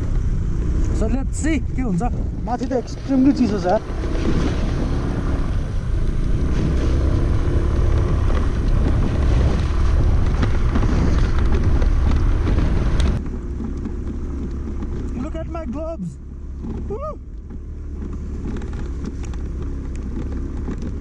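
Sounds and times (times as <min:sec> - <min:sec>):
wind noise on microphone: 0:00.0 - 0:15.1
scooter engine running: 0:00.0 - 0:21.0
tyres on wet road: 0:00.0 - 0:21.0.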